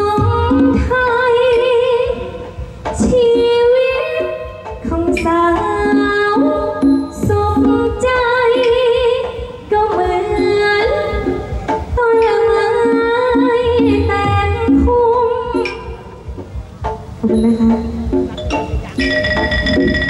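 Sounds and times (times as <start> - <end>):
woman singing with vibrato: 0.0 - 16.2
band accompaniment: 0.0 - 20.0.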